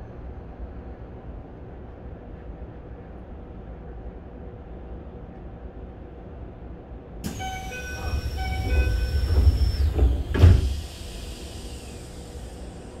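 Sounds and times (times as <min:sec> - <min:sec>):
door mechanism whine: 0:07.2 - 0:13.0
train doors thumping shut: 0:07.3 - 0:11.3.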